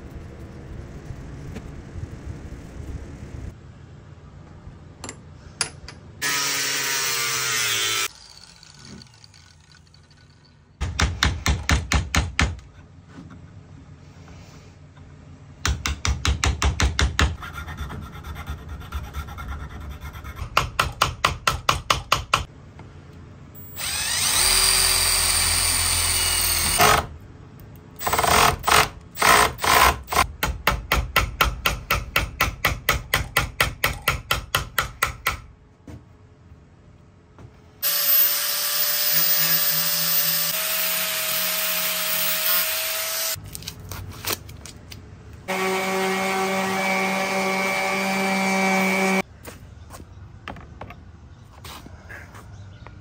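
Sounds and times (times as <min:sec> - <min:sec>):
power drill running: 0:06.2 - 0:09.9, 0:23.6 - 0:27.1, 0:37.8 - 0:43.4.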